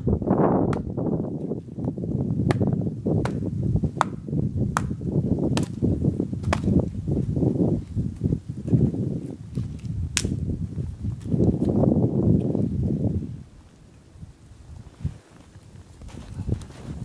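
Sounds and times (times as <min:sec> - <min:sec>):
low rustle: 0:06.3 - 0:17.0.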